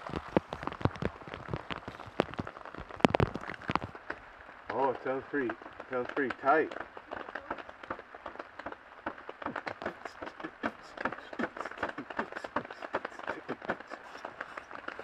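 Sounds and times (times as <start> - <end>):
rain tapping on taut surface: 0.0 - 15.0.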